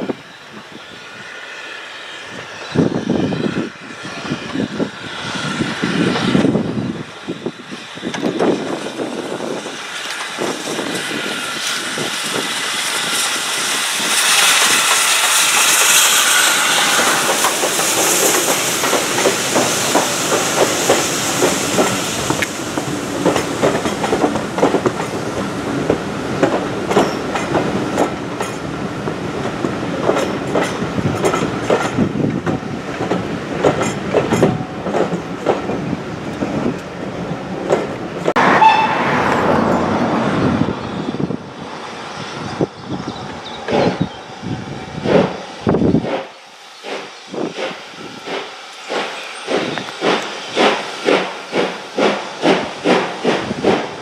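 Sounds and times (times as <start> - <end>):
steam locomotive hiss: 0.0 - 37.0, 43.6 - 54.0
steam locomotive exhaust beats: 2.1 - 54.0.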